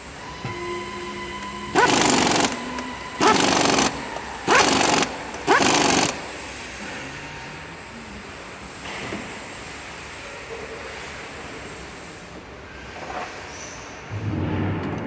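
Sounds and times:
pneumatic impact wrench bursts: 0:01.2 - 0:07.0.

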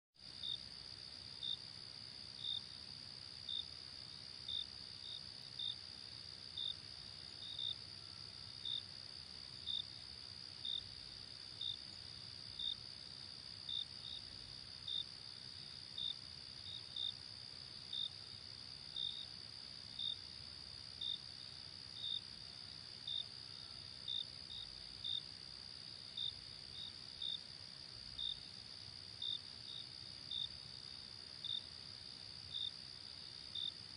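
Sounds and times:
louder cricket chirps: 0:00.2 - 0:33.9.

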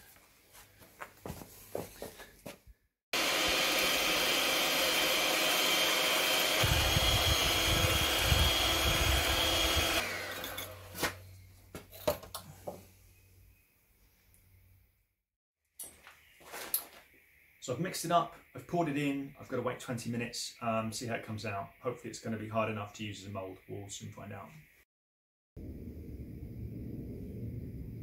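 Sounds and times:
electric hand mixer whining: 0:03.2 - 0:11.0.

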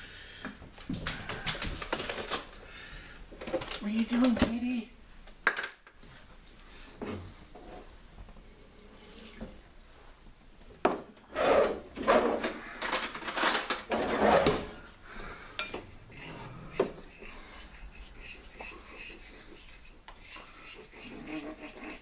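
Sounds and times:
metal cutlery clattering: 0:01.0 - 0:02.6, 0:12.4 - 0:14.1
utensil scraping a ceramic bowl: 0:16.0 - 0:22.0.

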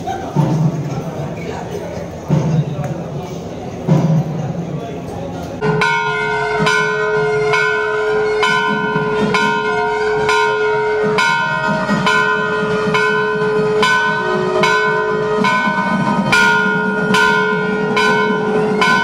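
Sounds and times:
temple bells ringing: 0:05.6 - 0:19.0.

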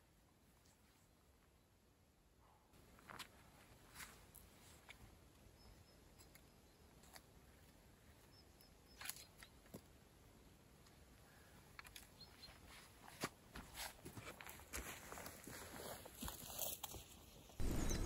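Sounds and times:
faint high bird chirps: 0:05.5 - 0:07.2, 0:17.6 - 0:18.0
footsteps on dry ground: 0:12.6 - 0:18.0.

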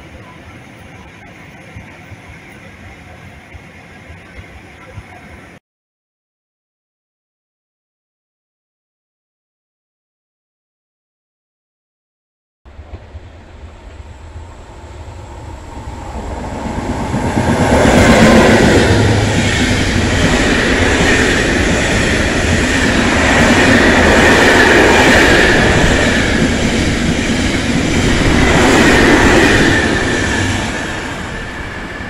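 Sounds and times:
freight train wheels rumbling: 0:12.7 - 0:32.0.

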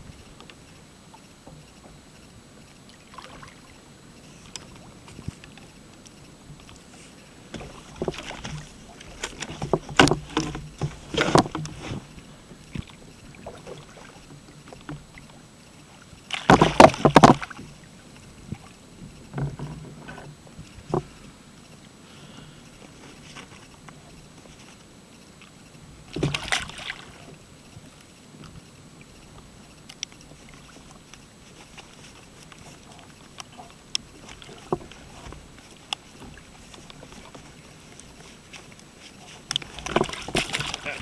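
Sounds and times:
fish thrashing and splashing: 0:07.6 - 0:14.2, 0:16.3 - 0:17.8, 0:26.1 - 0:27.3, 0:30.4 - 0:41.0
knocks on kayak hull: 0:16.4 - 0:17.5.

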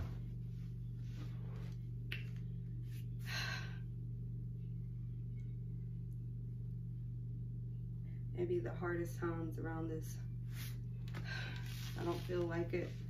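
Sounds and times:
steady low hum: 0:00.0 - 0:13.0
person breathing heavily: 0:03.2 - 0:03.9.

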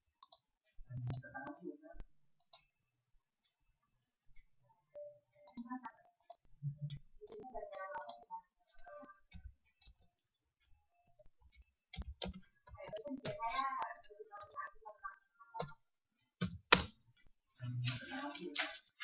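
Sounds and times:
keyboard typing clicks: 0:05.0 - 0:08.3, 0:11.1 - 0:14.7, 0:15.6 - 0:15.8.

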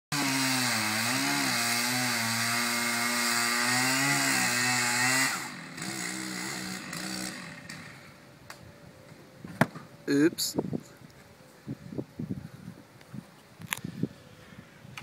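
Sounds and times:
chainsaw cutting tree trunk: 0:00.1 - 0:08.2.

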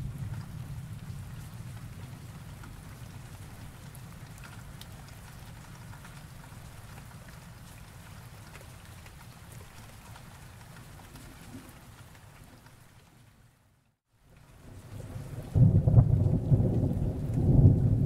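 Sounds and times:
raindrops ticking: 0:00.0 - 0:13.1, 0:14.3 - 0:18.0
steady rain: 0:00.0 - 0:18.0.

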